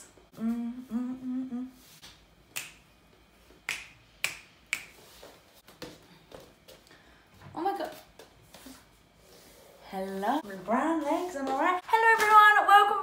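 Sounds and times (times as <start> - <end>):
finger snaps: 2.0 - 2.9, 3.6 - 5.1.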